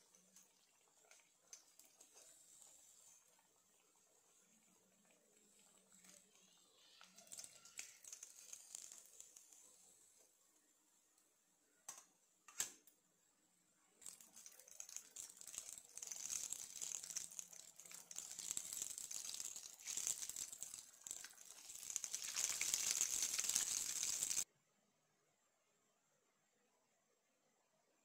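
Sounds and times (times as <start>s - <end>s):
hot oil sizzling and crackling: 0.0s - 10.3s, 14.0s - 24.5s.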